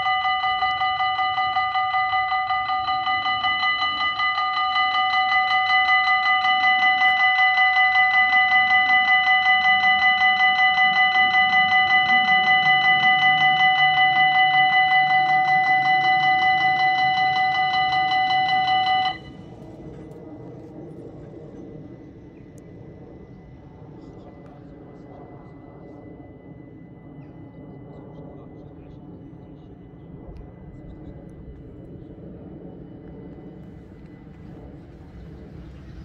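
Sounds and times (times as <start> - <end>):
electronic warning bell ringing rapidly: 0.0 - 19.4.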